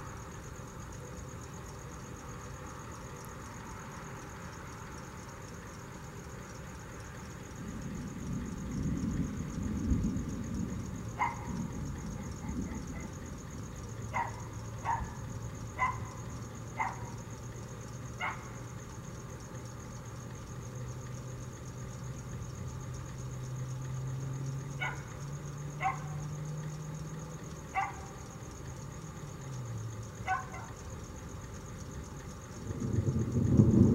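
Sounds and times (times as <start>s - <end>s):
dog barking: 11.2s - 11.6s, 12.2s - 13.2s, 14.1s - 15.2s, 15.8s - 16.2s, 16.8s - 17.2s, 18.2s - 18.5s, 24.8s - 25.1s, 25.8s - 26.2s, 27.7s - 28.2s, 30.2s - 30.8s.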